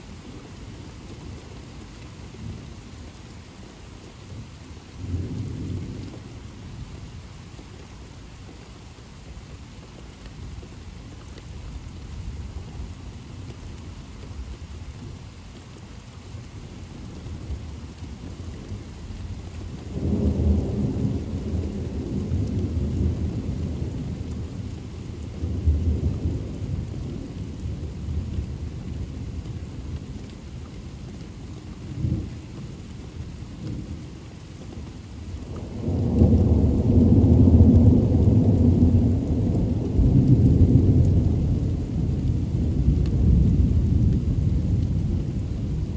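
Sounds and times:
steady rain falling: 0.0 - 45.9
thunder rumbling: 19.7 - 30.2, 35.4 - 45.9.

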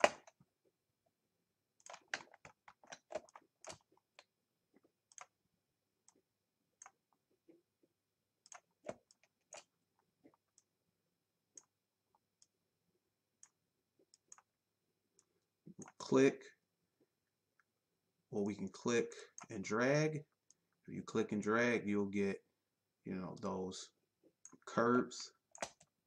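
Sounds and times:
computer mouse clicks: 8.4 - 9.7, 13.4 - 14.5, 25.5 - 25.9.

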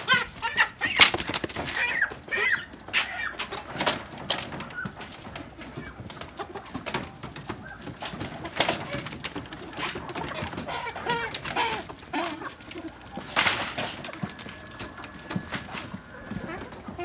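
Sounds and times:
chickens clucking and squawking: 0.0 - 17.0
sharp knocks and rattles: 0.0 - 17.0.

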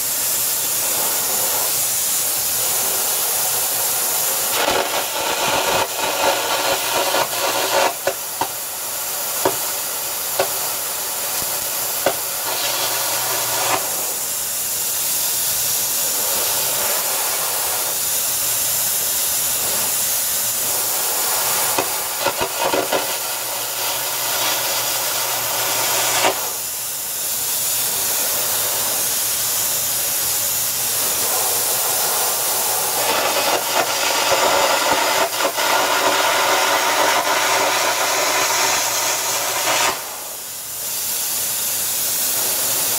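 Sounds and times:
crackling arc gouging torch: 0.0 - 42.9
steady air hiss: 0.0 - 42.9.

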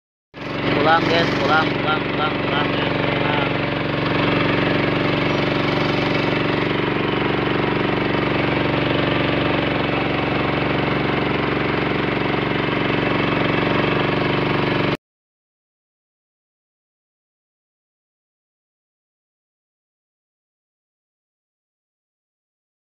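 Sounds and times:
boat engine running: 0.4 - 15.0.

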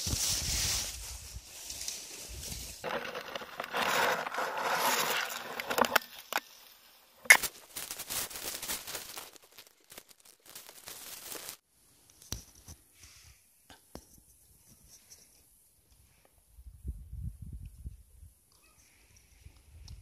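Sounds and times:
dry grass and leaves rustling: 0.0 - 13.3.

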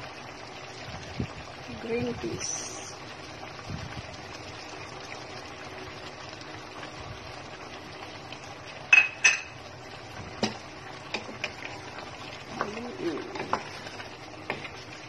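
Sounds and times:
stew simmering with low hiss: 0.0 - 15.0
utensil clinking on pot: 8.9 - 9.6.

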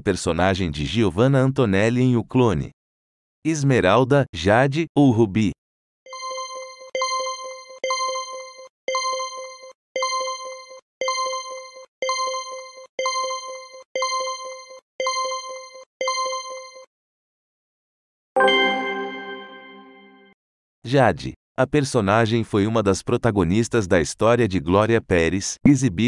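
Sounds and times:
countdown chiming tone with ticks: 6.1 - 16.9, 18.4 - 20.1
loud ringing chime: 6.1 - 16.9, 18.4 - 20.3.

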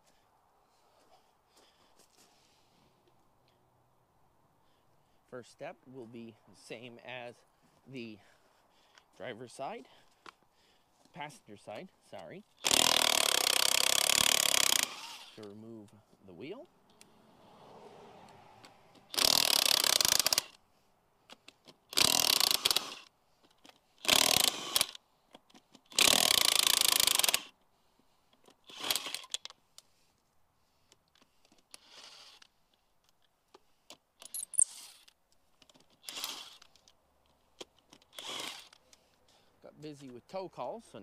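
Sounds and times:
impact wrench bursts: 12.6 - 15.4, 19.0 - 20.6, 21.9 - 23.1, 24.0 - 25.0, 25.9 - 27.6, 28.6 - 29.4, 36.0 - 36.7, 38.0 - 38.8.

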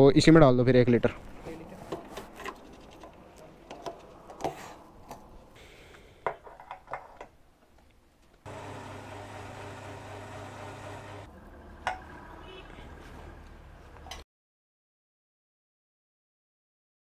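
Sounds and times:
fuel pump humming: 8.5 - 12.6.

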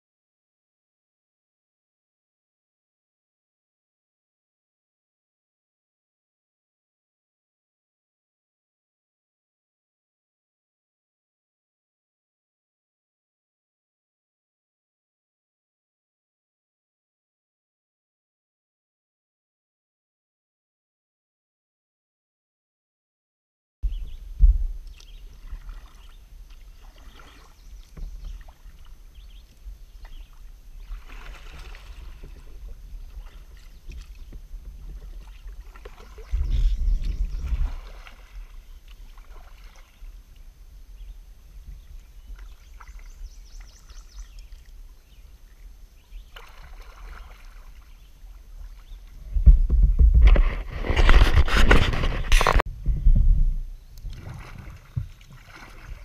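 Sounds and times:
steady low rumble: 23.8 - 25.4, 52.6 - 54.2
paddle swishing through water: 23.9 - 56.0
camera rubbing and knocking: 49.4 - 53.6.

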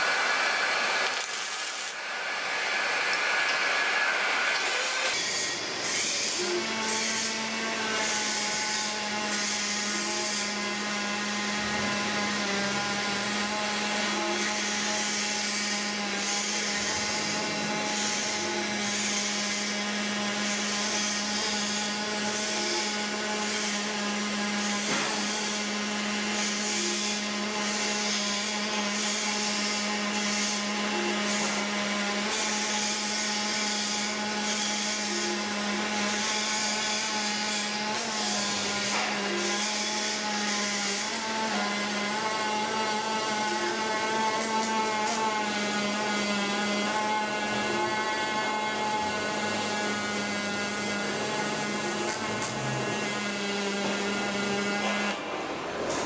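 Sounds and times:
welding arc crackling: 0.0 - 6.4, 51.2 - 52.8.

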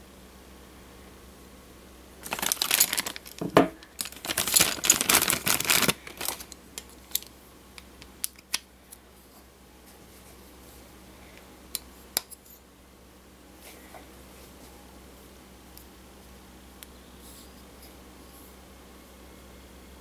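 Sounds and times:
plastic bag crinkling: 2.2 - 7.3.

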